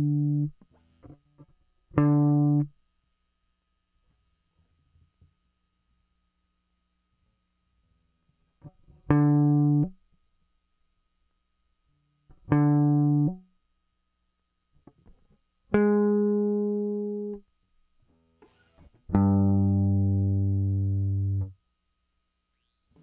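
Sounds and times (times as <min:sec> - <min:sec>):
electric guitar plucked notes: 0:00.0 - 0:00.5, 0:02.0 - 0:02.7, 0:09.0 - 0:09.9, 0:12.3 - 0:13.4, 0:15.7 - 0:17.4, 0:18.5 - 0:21.5.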